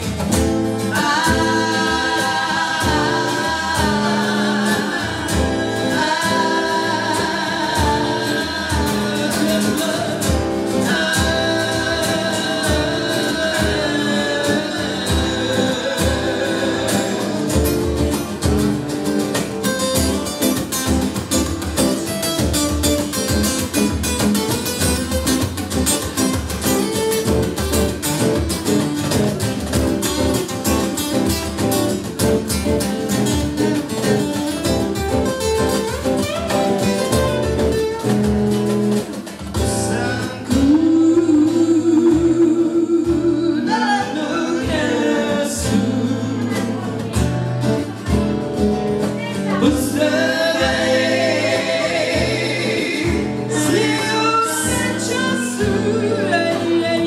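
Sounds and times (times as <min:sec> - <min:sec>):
person singing: 0:00.0 - 0:18.5, 0:39.6 - 0:47.4, 0:49.2 - 0:57.0
acoustic guitars strumming: 0:00.0 - 0:57.0.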